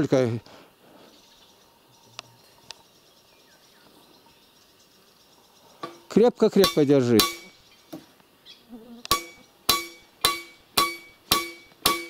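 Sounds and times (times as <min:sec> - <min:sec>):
hammer striking metal crossbar: 0:06.6 - 0:07.5, 0:09.1 - 0:12.0.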